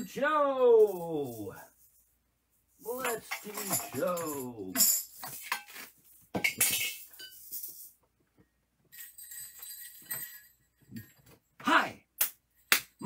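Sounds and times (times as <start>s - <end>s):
small jingle bells ringing: 2.8s - 5.6s, 6.4s - 8.0s, 8.9s - 11.4s
small hard objects clinking: 2.8s - 7.9s.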